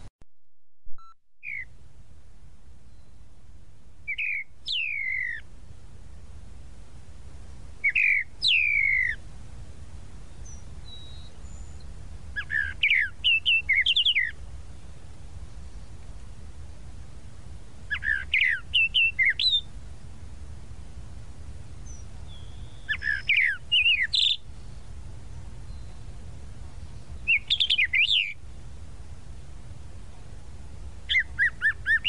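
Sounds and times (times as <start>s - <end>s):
low background rumble: 1.6s - 32.0s
mockingbird calling: 4.1s - 5.5s, 7.8s - 9.2s, 12.4s - 14.4s, 17.9s - 19.7s, 21.8s - 24.4s, 27.2s - 28.4s, 31.1s - 32.0s.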